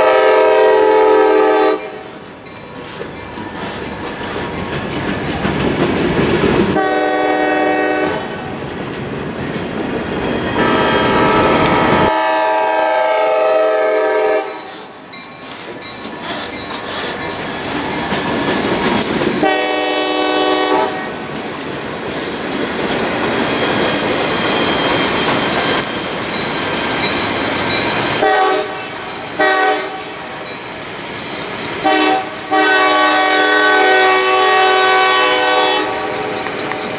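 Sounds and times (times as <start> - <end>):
locomotive air horn blasts: 0.0 - 2.1, 6.8 - 8.3, 10.6 - 14.7, 19.4 - 21.1, 28.2 - 30.3, 31.8 - 36.4
freight train rumble and wheel clatter: 0.0 - 36.9.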